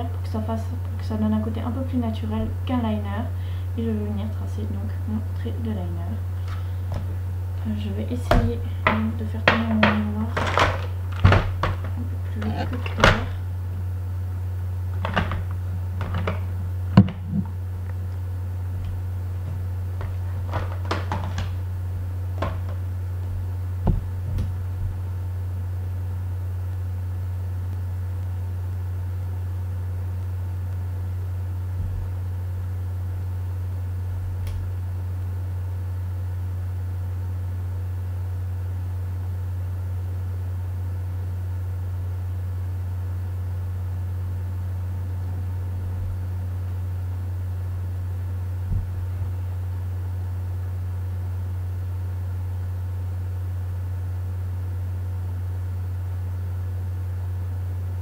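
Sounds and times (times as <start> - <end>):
steady low hum: 0.0 - 58.0
makeup items knocking: 8.3 - 12.0, 15.0 - 17.5.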